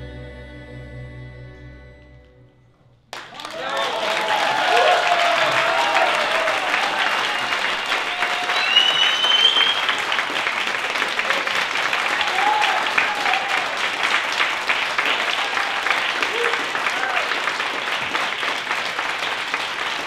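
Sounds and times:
audience applauding: 3.1 - 20.0
high rising whistle: 7.0 - 10.0.

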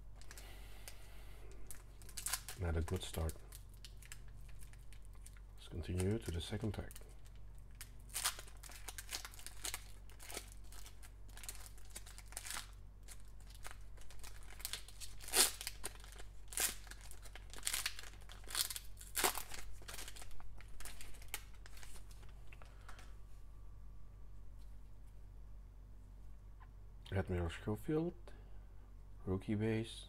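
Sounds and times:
foil wrapper tearing and crinkling: 1.6 - 23.0.

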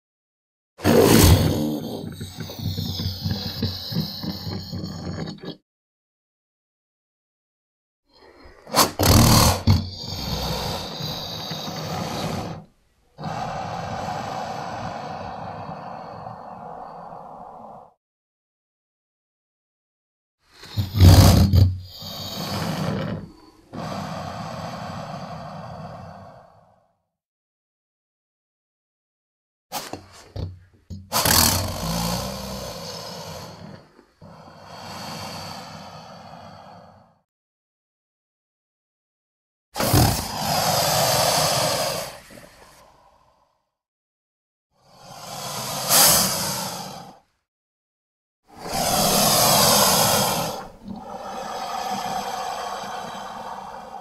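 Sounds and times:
creature growling roar: 0.8 - 5.3, 13.2 - 17.4, 39.8 - 42.3, 48.5 - 54.0
creature breathy exhale: 0.8 - 5.6, 8.1 - 18.0, 20.5 - 27.0, 31.1 - 37.3, 39.8 - 43.8, 44.7 - 47.4, 48.5 - 54.0.

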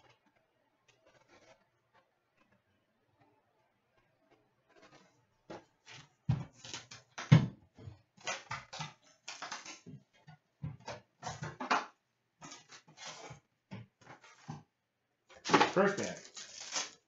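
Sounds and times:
foil packs rustling and ripping: 15.4 - 17.0.

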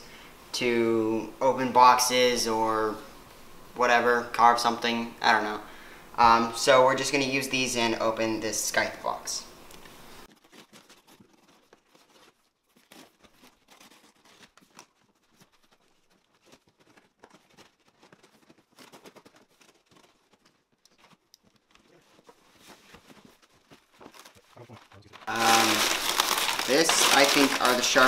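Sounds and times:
knife slicing packing tape: 10.3 - 20.4
knife scraping cardboard: 10.3 - 24.4.

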